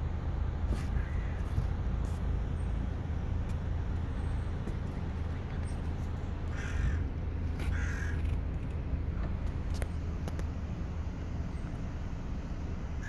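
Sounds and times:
steady low rumble: 0:00.0 - 0:13.0
crow cawing: 0:01.0 - 0:01.4, 0:06.5 - 0:07.1, 0:07.7 - 0:08.2.

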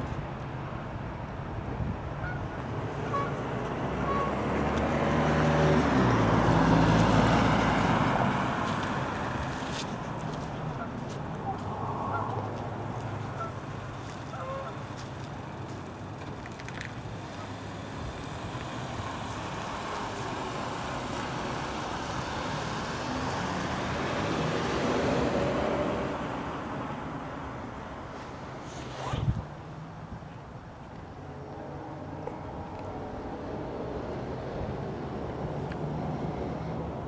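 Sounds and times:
vehicle passing: 0:02.2 - 0:30.1, 0:31.2 - 0:37.0.

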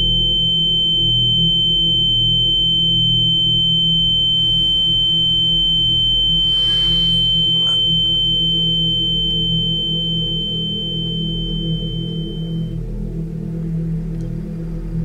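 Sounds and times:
low droning hum: 0:00.0 - 0:15.0
high-pitched pure tone: 0:04.2 - 0:12.8.

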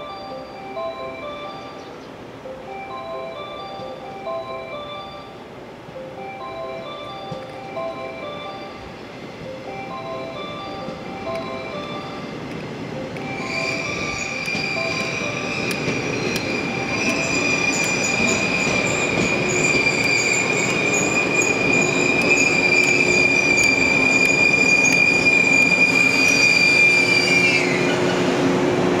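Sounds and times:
train wheels rumbling on rails: 0:06.6 - 0:29.0
high-pitched train wheel squeal: 0:07.0 - 0:28.5.

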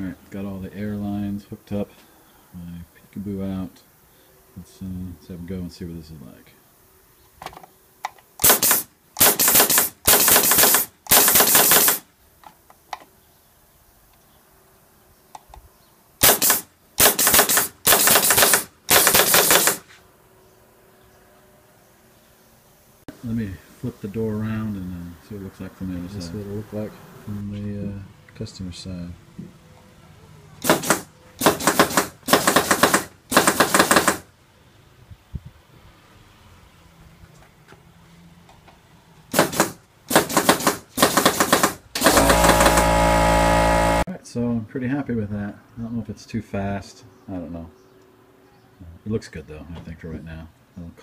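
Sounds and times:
pneumatic valve rattling door handle: 0:08.4 - 0:12.0.

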